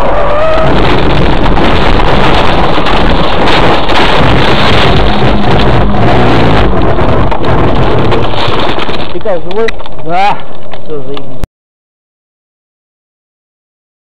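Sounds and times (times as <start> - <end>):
car crash: 0.0 - 10.0.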